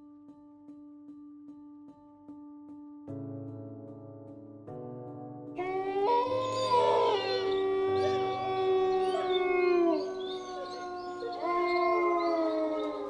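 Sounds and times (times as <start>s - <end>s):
dogs howling: 5.6s - 13.0s.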